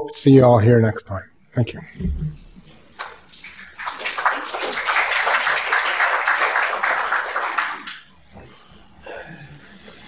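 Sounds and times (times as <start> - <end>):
audience applauding: 3.0 - 8.1.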